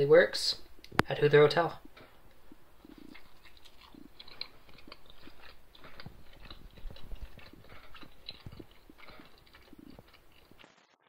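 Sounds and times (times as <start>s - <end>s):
mouth clicks: 1.8s - 10.6s
person chewing crisp pizza crust: 1.8s - 11.0s.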